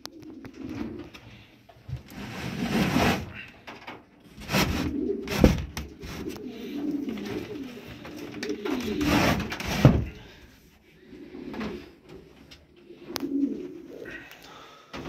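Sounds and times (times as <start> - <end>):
pigeons cooing: 0.0 - 1.7, 4.4 - 15.0
scraping noise: 2.1 - 3.5, 8.6 - 10.1.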